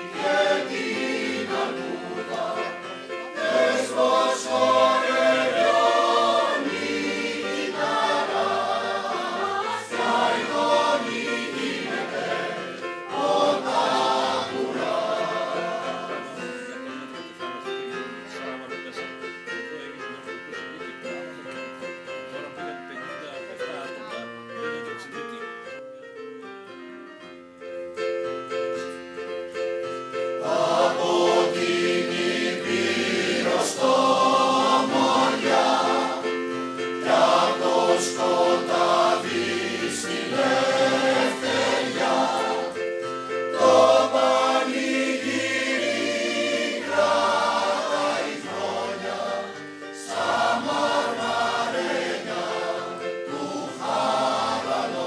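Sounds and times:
mixed choir singing: 0.0 - 16.8, 30.3 - 55.0
digital piano accompaniment: 0.0 - 55.0.

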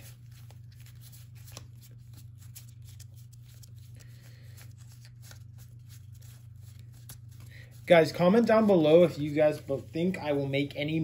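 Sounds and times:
cards flipped through by hand: 0.0 - 7.8
steady low hum: 0.0 - 11.0.

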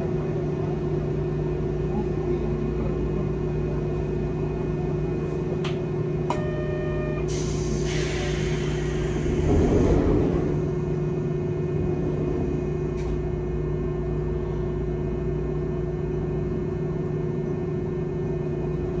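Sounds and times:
streetcar equipment humming: 0.0 - 19.0
short buzzer tone: 6.3 - 7.3.

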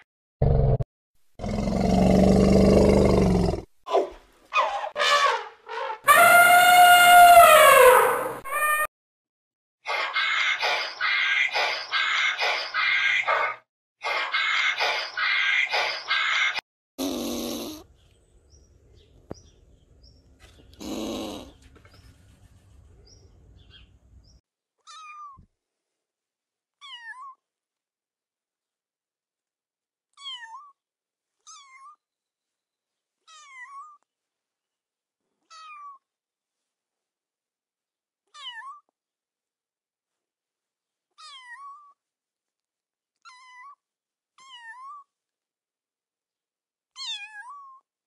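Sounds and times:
kitten mewing: 17.0 - 17.8, 20.8 - 21.6.

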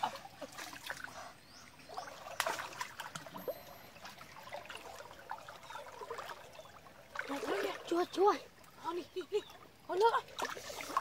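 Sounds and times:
creek water splashing: 0.0 - 11.0
water dripping: 1.7 - 11.0.

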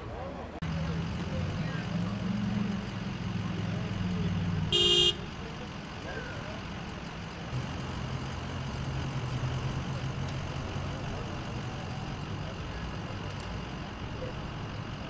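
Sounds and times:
large vehicle engine idling: 0.2 - 15.0.

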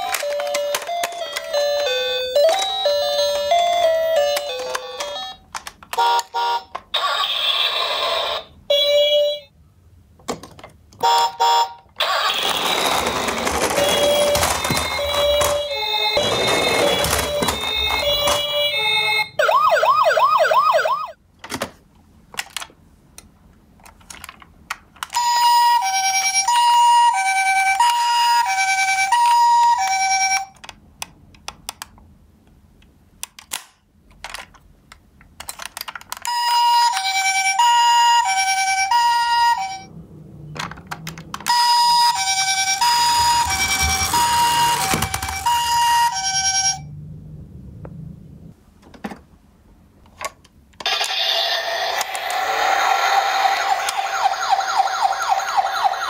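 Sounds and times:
plastic toys clicking: 0.0 - 3.0, 3.7 - 6.9, 12.0 - 18.6, 22.3 - 25.3, 29.2 - 32.1, 32.8 - 37.4, 40.6 - 41.6, 42.7 - 45.8
toy electronic siren: 6.0 - 9.5, 11.0 - 21.2, 25.2 - 30.5, 36.3 - 39.9, 41.4 - 46.9, 50.8 - 56.0.

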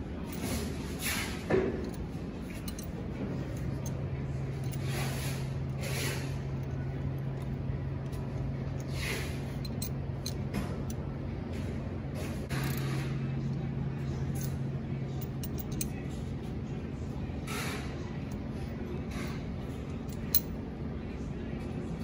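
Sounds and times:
steady low hum: 0.0 - 22.0
rustles of hands and hose: 4.6 - 7.5.

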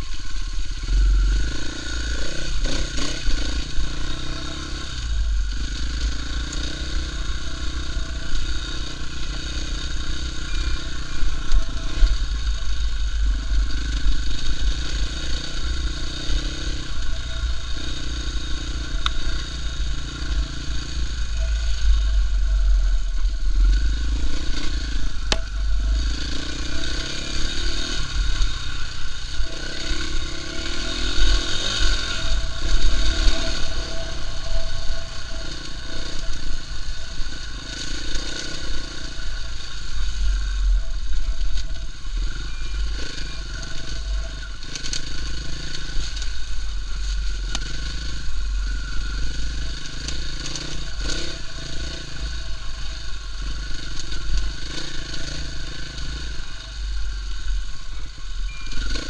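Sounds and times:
motorbike engine revving: 0.0 - 59.0
heavy low rumble: 16.9 - 37.4.

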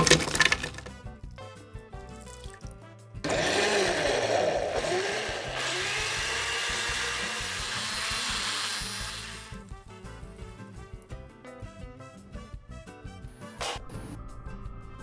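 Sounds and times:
blender running: 3.2 - 9.6.

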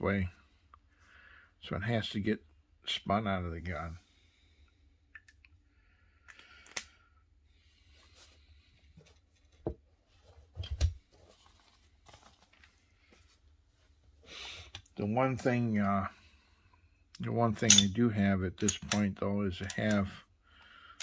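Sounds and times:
paper rustling: 10.1 - 13.4.

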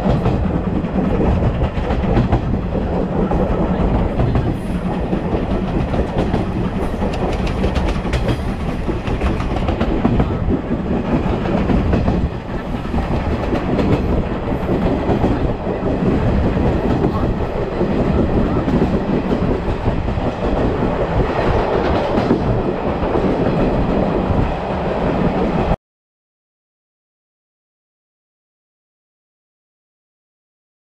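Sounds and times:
sharp rail clicks: 0.0 - 25.7
train wheels rumbling on rail: 0.0 - 25.8.

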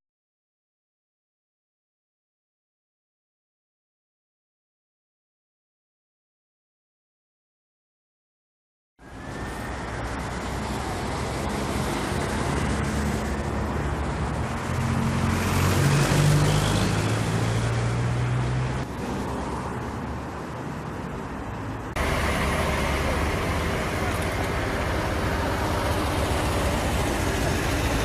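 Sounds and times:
highway traffic noise: 9.0 - 28.0
vehicle passing: 9.2 - 28.0.

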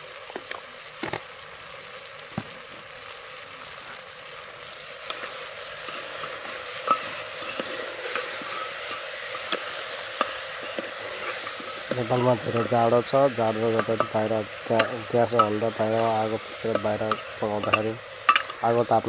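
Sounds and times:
food sizzling in a pot: 0.0 - 19.0
ladle clinking and scraping: 5.1 - 12.9, 13.6 - 18.7.

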